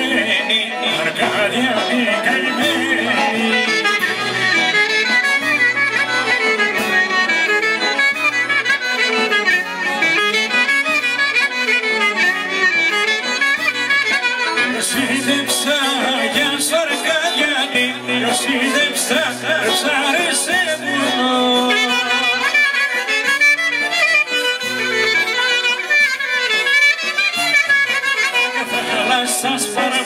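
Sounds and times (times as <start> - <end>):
accordion: 0.0 - 30.0
clarinet melody: 2.4 - 15.0, 21.0 - 28.9.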